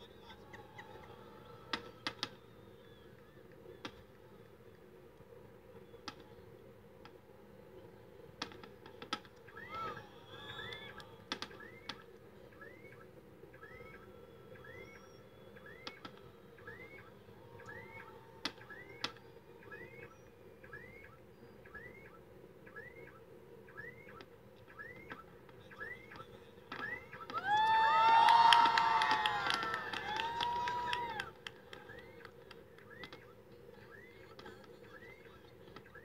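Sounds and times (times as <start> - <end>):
faint high chirp: 0.0 - 4.2, 9.4 - 27.4, 30.7 - 36.0
crowd cheering: 0.0 - 4.8, 8.9 - 20.2, 25.6 - 36.0
distant fireworks popping: 0.0 - 36.0.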